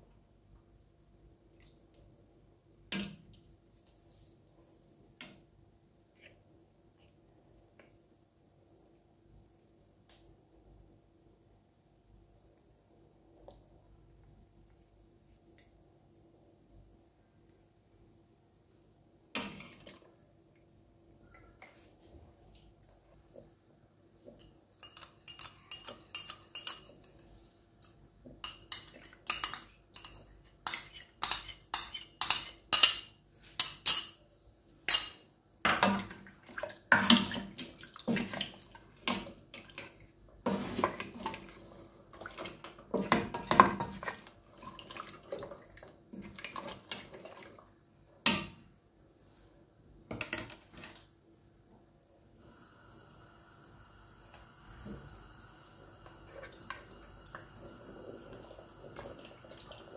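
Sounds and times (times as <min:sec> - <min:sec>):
ladle scraping metal pot: 0:40.4 - 0:41.4.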